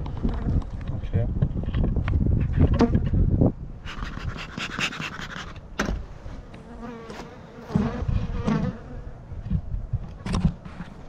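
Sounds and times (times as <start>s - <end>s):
honey bees buzzing: 6.4s - 9.0s.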